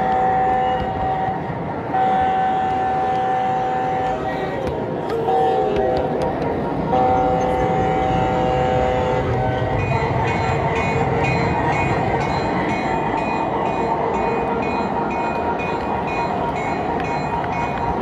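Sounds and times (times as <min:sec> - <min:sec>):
chord-like train horn: 0:00.0 - 0:11.1
model train rolling on track: 0:00.0 - 0:18.0.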